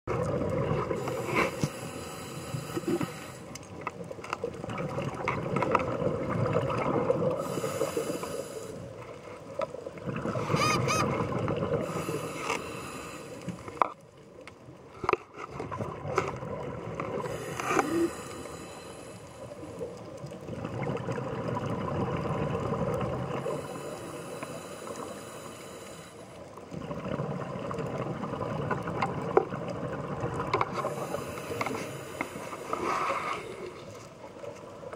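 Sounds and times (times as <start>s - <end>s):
gurgling exhaled bubbles: 0.1s - 1.9s, 4.5s - 8.1s, 9.8s - 12.3s, 20.0s - 24.1s, 26.6s - 31.4s
regulator breathing hiss: 1.0s - 3.5s, 7.4s - 8.9s, 11.8s - 13.7s, 17.3s - 19.8s, 23.4s - 26.4s, 30.8s - 33.8s.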